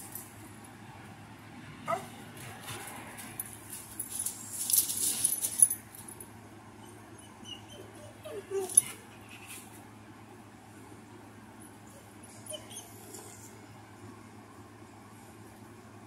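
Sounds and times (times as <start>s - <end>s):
rustling: 2.4s - 5.8s
dog whimpering: 6.8s - 9.5s, 12.3s - 13.5s.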